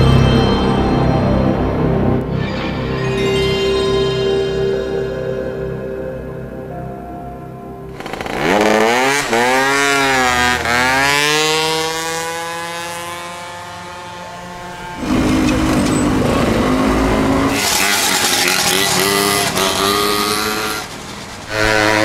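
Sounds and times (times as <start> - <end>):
louder engine: 7.9 - 22.0
scooter engine revving: 7.9 - 22.0
small motorized bicycle engine buzzing: 8.0 - 12.3, 14.4 - 22.0.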